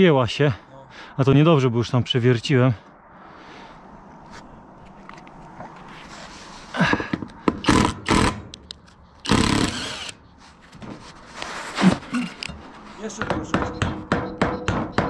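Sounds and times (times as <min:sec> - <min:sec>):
impact driver bursts: 0:07.5 - 0:08.5, 0:09.2 - 0:10.2.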